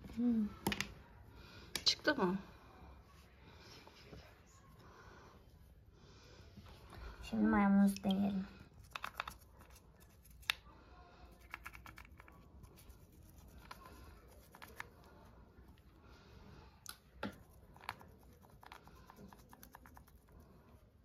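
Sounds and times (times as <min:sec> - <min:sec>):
wet plastic toy rubbed in fingers: 0:08.7 - 0:10.6, 0:11.4 - 0:15.4, 0:17.4 - 0:20.8.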